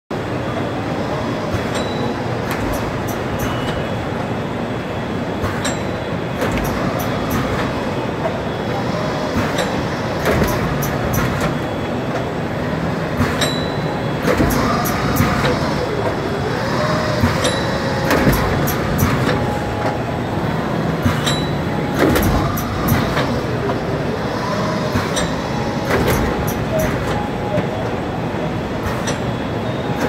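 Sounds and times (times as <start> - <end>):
machine running steadily: 0.1 - 30.0
sharp clack with high ring: 1.7 - 2.2, 13.4 - 13.9.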